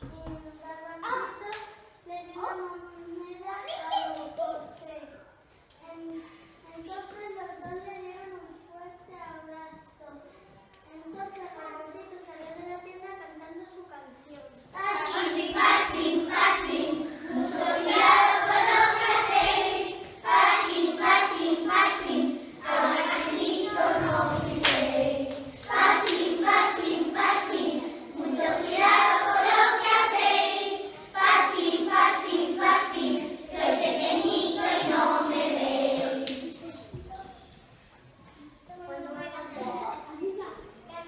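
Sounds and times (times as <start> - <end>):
children singing: 14.8 - 36.6.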